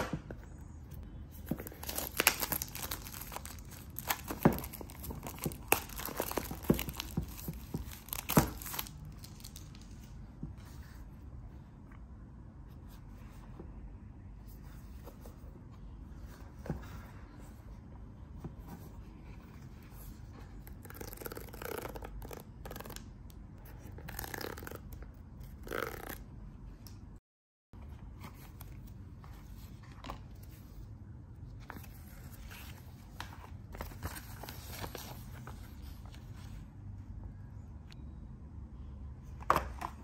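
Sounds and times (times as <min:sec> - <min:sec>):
cardboard rustling: 0:01.3 - 0:11.1, 0:31.6 - 0:36.6.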